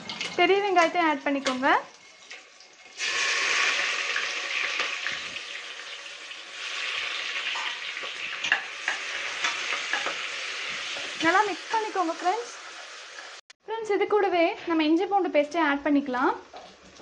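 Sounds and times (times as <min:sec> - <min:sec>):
onions sizzling in hot oil: 0:00.0 - 0:13.4.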